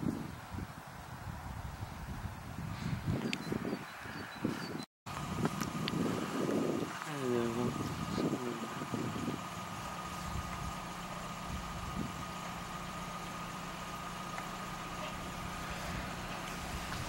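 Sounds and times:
low engine hum: 0:05.1 - 0:17.0
constant high-pitched tone: 0:07.1 - 0:17.0.

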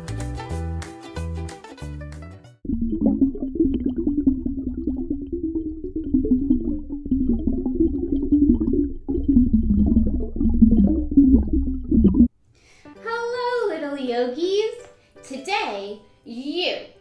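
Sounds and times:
underwater bubbling rumble: 0:02.6 - 0:12.3
small underwater crackles: 0:02.7 - 0:12.3.

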